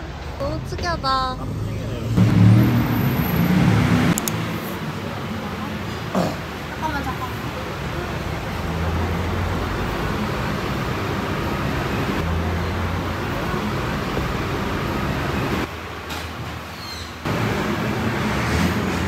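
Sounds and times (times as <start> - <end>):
roadside traffic noise: 0.0 - 19.0.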